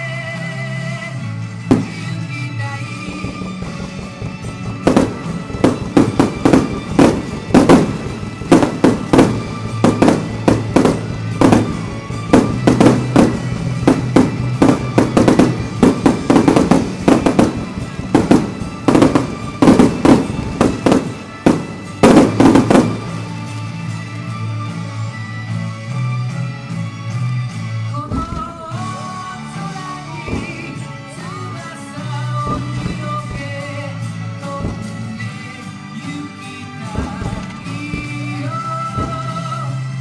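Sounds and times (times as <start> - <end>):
music: 0.0 - 40.0
fireworks bangs: 1.4 - 24.5, 27.9 - 40.0.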